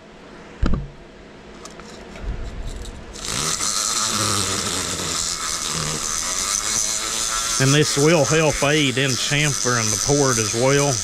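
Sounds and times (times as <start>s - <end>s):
thin motor whine: 1.6s - 11.0s
rotary tool grinding hiss: 1.8s - 11.0s.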